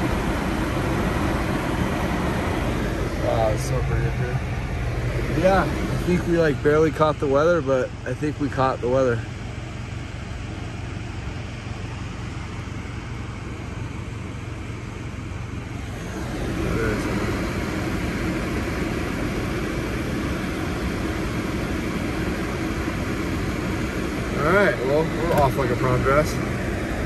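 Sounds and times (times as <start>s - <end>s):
car engine rumble inside cabin: 0.0s - 27.0s.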